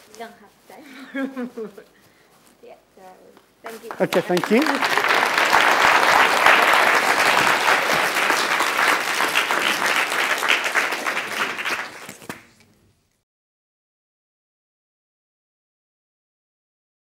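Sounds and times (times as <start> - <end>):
audience applauding: 3.8 - 12.6.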